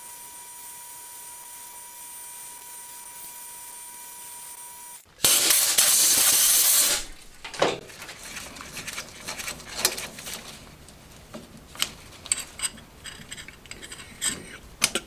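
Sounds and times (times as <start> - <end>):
compressed air hissing: 5.2 - 7.2.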